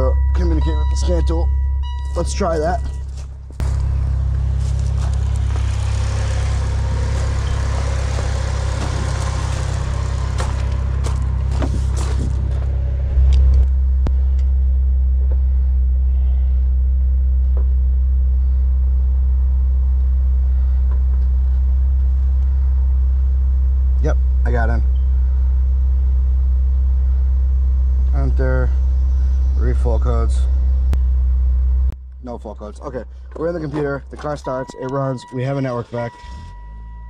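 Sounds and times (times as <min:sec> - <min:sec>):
car engine idling: 0:00.0 - 0:37.0
rustling handling noise: 0:02.8 - 0:12.8.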